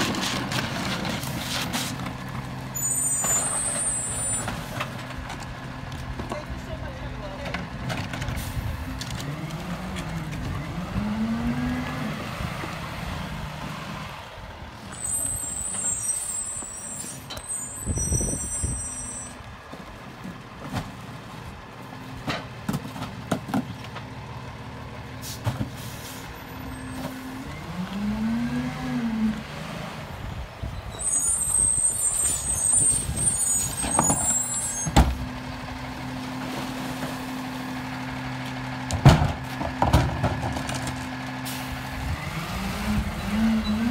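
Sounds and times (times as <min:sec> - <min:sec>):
diesel truck engine revving: 0:08.4 - 0:19.6, 0:24.1 - 0:43.9.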